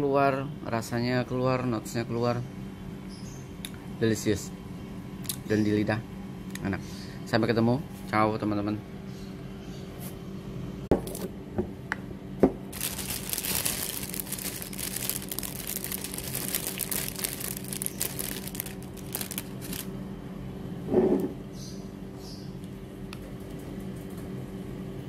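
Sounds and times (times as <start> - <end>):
crinkling handling noise: 12.7 - 19.9.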